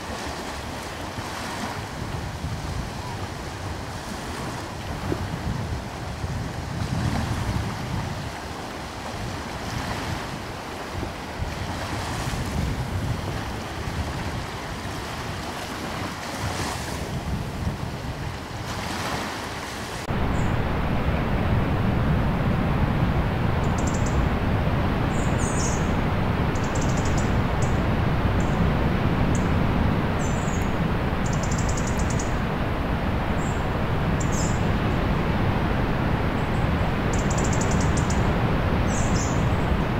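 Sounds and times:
waves washing: 0.0 - 39.9
steady rushing noise: 19.8 - 39.9.

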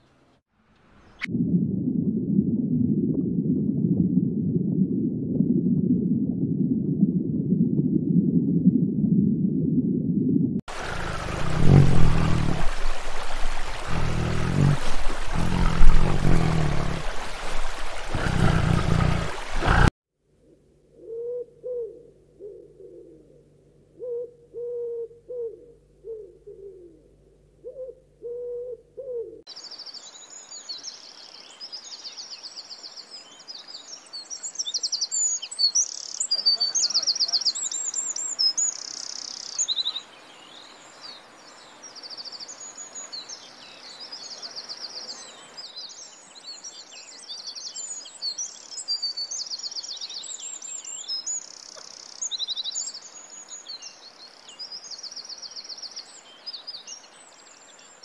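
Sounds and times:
faint steady hiss: 10.7 - 19.9, 29.5 - 58.0
low hooting bird calls: 10.7 - 19.9, 20.9 - 29.4
small birds singing: 10.7 - 19.9, 29.5 - 58.0.

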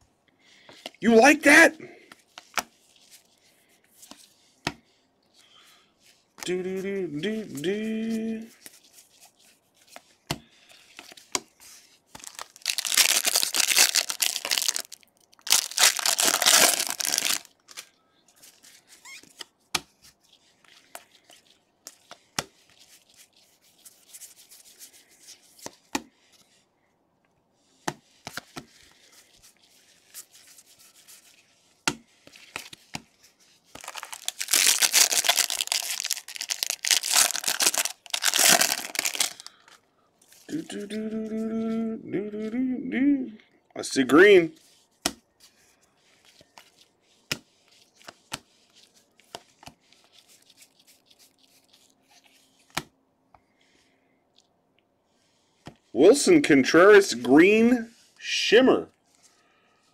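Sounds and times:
cards rustling: 0.5 - 26.6, 27.7 - 42.5, 44.1 - 52.9
card pack wrappers tearing: 12.2 - 17.9, 33.8 - 39.7.

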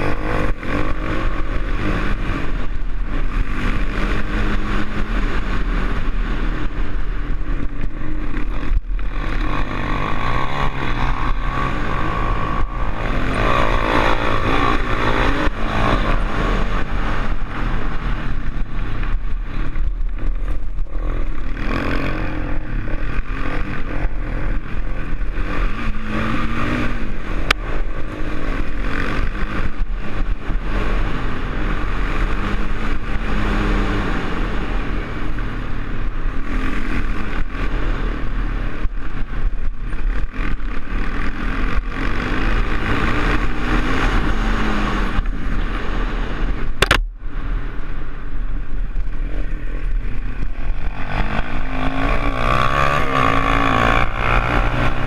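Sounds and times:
rattling over rough ground: 0.0 - 47.3
atv engine revving: 0.0 - 55.0
wind rumble on microphone: 0.0 - 55.0
sharp click: 46.8 - 47.1.

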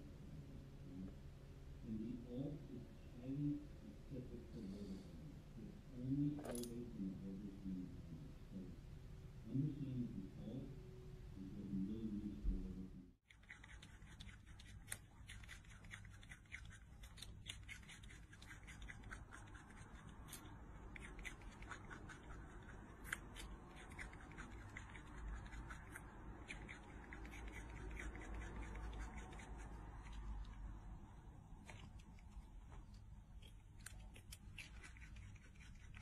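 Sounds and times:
rodent crunching carrot: 13.2 - 36.0.

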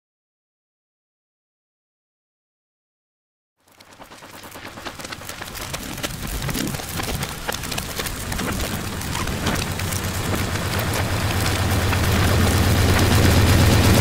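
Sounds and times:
dense crackling and popping: 3.6 - 14.0
low steady hum: 4.1 - 14.0.

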